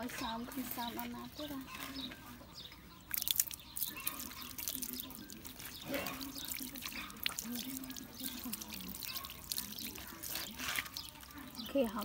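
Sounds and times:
water splashing and dripping off fur: 0:03.1 - 0:12.0.

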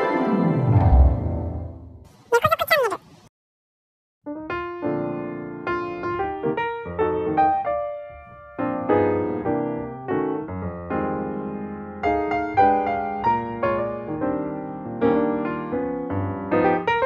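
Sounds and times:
gentle piano music: 0:04.3 - 0:17.0.

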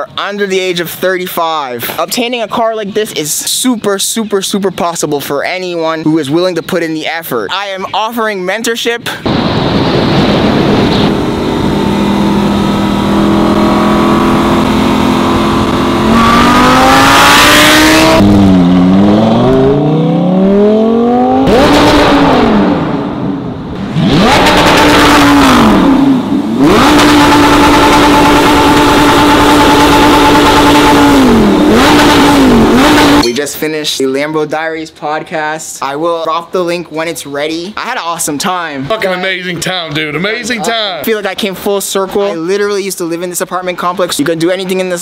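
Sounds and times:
sports car engine revving: 0:09.2 - 0:33.2.

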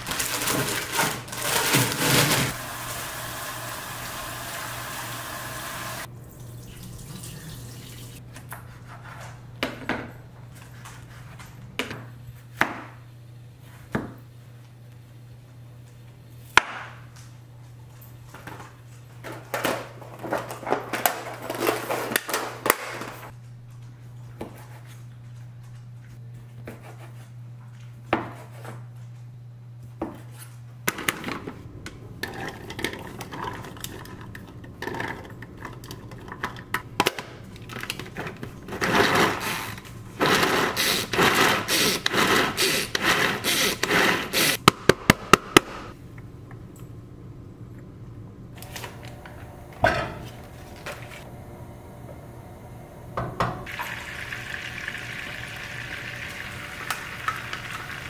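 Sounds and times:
hand-pull food chopper whirring: 0:40.2 - 0:44.6.

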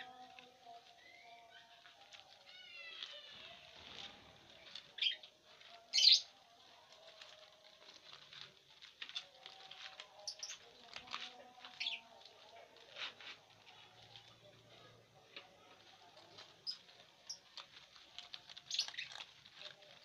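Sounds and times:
corn husk rustling and tearing: 0:00.0 - 0:06.0, 0:15.6 - 0:20.0
lovebirds calling: 0:00.8 - 0:06.4, 0:10.2 - 0:12.2, 0:18.6 - 0:19.3.

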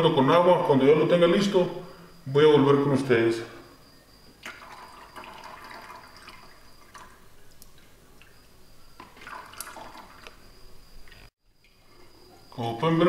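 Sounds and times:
liquid trickling and dripping: 0:04.4 - 0:12.6.

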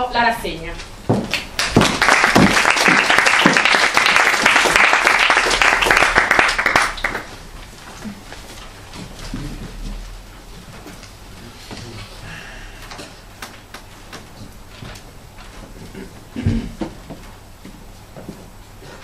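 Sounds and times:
audience applauding: 0:01.3 - 0:07.4.

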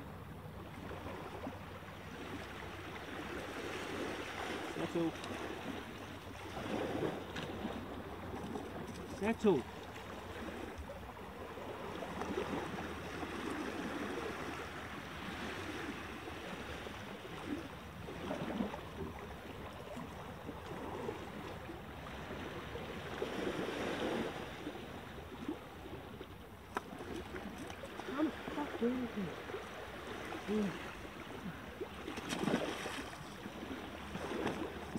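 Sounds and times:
small waves washing onto rocks: 0:02.1 - 0:34.9.

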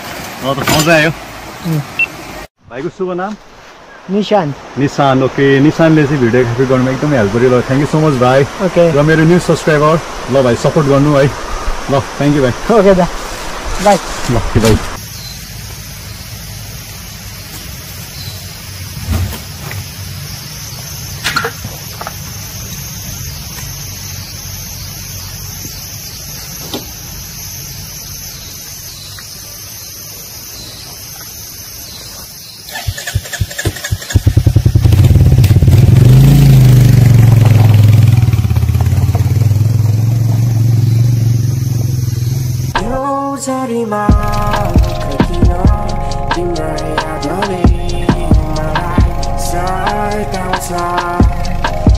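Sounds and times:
motorcycle engine revving: 0:32.7 - 0:42.9
motorcycle engine starting and running: 0:32.7 - 0:43.0.

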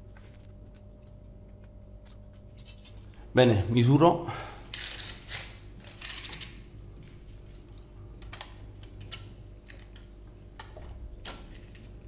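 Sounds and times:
steady low hum: 0:00.0 - 0:12.0
tape measure clicking and rattling: 0:04.7 - 0:06.6.

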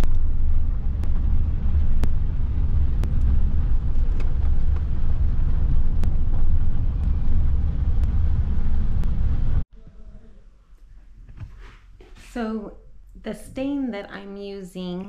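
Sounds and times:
road and wind noise rumble: 0:00.0 - 0:09.6.

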